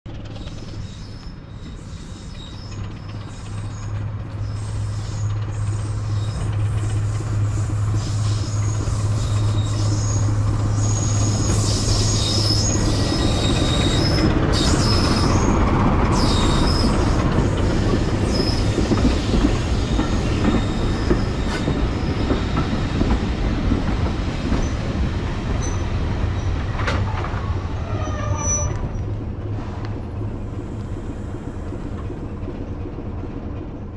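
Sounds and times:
diesel locomotive engine: 0.0 - 33.9
train coaches rolling by: 0.1 - 33.9
train brakes squealing: 0.3 - 29.8.

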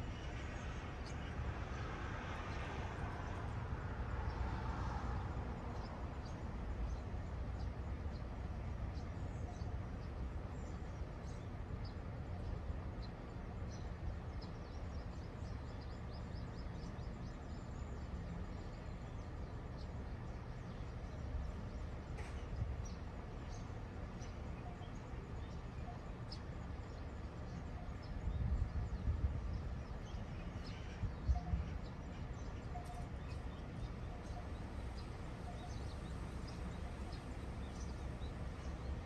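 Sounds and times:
low outdoor rumble: 0.0 - 39.0
small birds chirping: 12.7 - 39.0.

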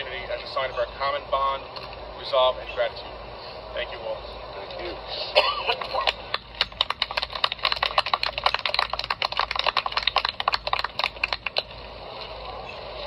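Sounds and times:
small group clapping: 5.6 - 11.7.

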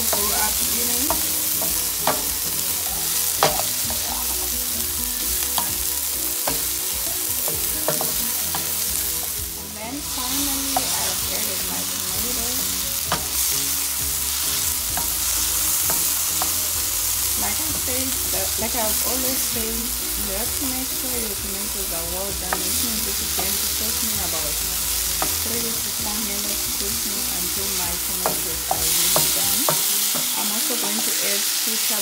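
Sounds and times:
spatula scraping and tapping pan: 0.0 - 9.4, 13.0 - 13.5, 14.6 - 16.6, 22.4 - 24.5, 25.2 - 25.5, 27.9 - 30.5
vegetables sizzling in oil: 0.0 - 32.0.

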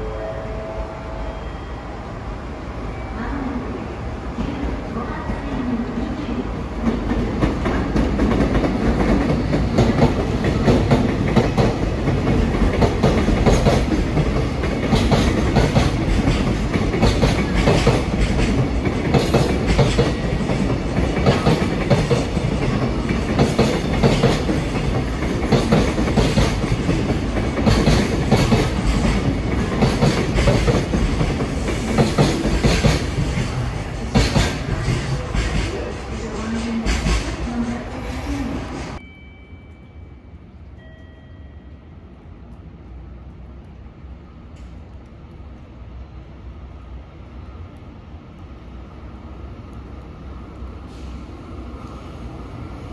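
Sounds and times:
freight train rumbling past: 0.0 - 39.3
wheels clacking over rail joints: 7.1 - 35.7.

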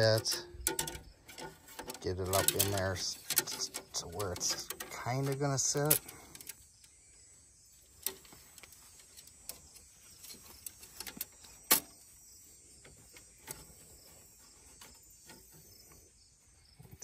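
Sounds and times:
metal pipe tapping against engine: 0.2 - 1.9.

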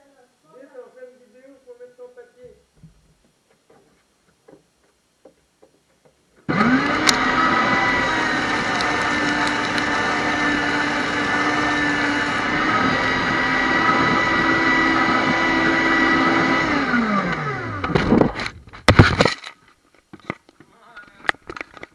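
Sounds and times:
shredder motor humming: 6.5 - 18.2.

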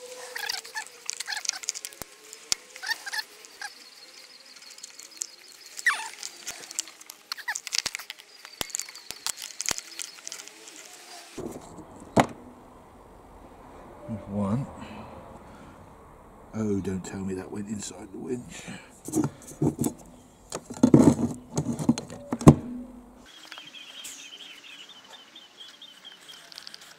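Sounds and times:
wires and plastic box rustling: 0.0 - 12.3, 19.0 - 22.6
birds chirping faintly: 0.3 - 26.9.

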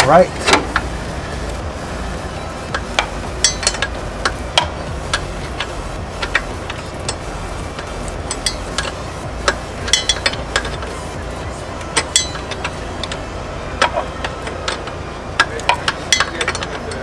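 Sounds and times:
steady low hum: 0.0 - 17.0
spanner clicking on bolt: 7.8 - 10.9, 11.9 - 13.2.

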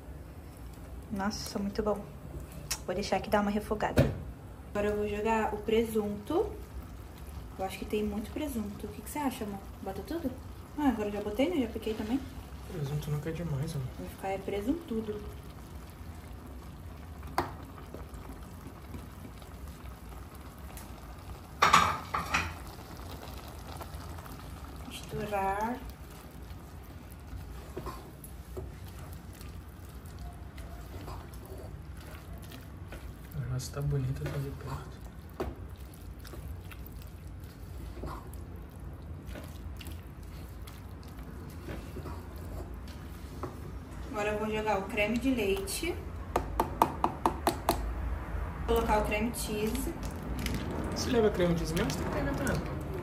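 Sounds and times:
sauce sizzling and bubbling: 0.0 - 53.0
spoon stirring thick sauce: 25.0 - 43.8.

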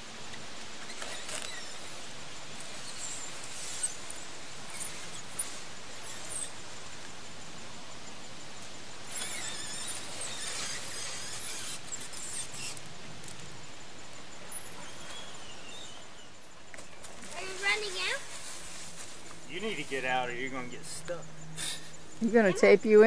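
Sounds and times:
stretch wrap squealing: 0.8 - 6.6, 9.1 - 12.9, 17.3 - 20.0.

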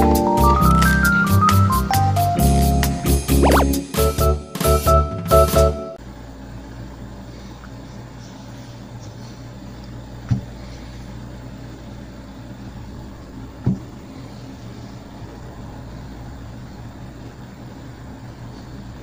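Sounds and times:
steady low hum: 6.0 - 19.0.

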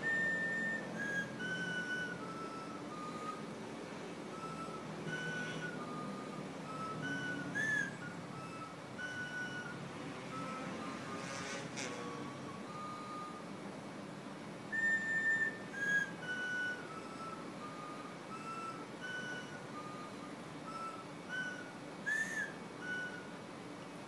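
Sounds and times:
slow melody on pitched whistles: 0.0 - 13.6, 14.7 - 23.4.

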